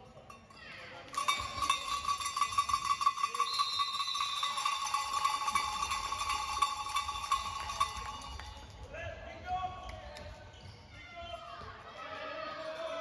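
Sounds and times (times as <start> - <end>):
cowbell clanging: 0.2 - 8.8.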